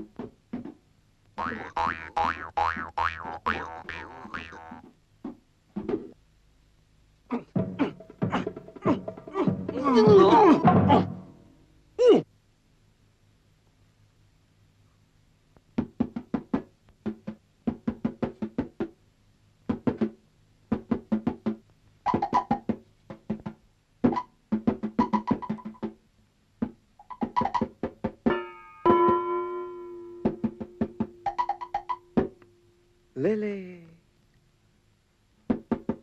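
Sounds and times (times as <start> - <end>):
staccato cartoon music: 1.4 - 4.8, 7.5 - 11.2, 19.7 - 26.0, 26.6 - 28.2, 30.2 - 32.3.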